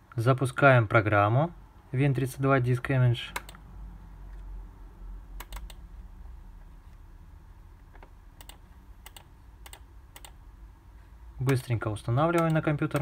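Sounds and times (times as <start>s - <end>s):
computer mouse clicks: 5.4s - 5.8s, 7.9s - 10.4s, 12.3s - 13.0s.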